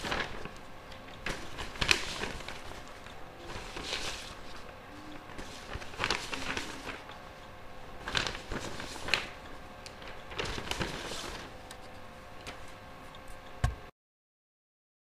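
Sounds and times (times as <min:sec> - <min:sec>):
paper rustling: 0:00.0 - 0:00.6, 0:01.2 - 0:07.2, 0:08.0 - 0:12.8
faint steady hum: 0:00.0 - 0:13.9.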